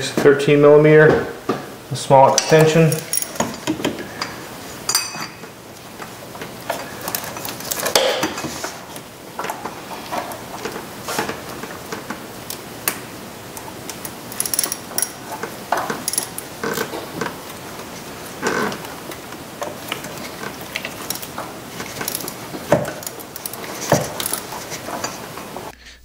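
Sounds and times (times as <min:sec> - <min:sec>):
socket wrench clinking on bolts: 0:02.4 - 0:03.8, 0:14.0 - 0:16.8.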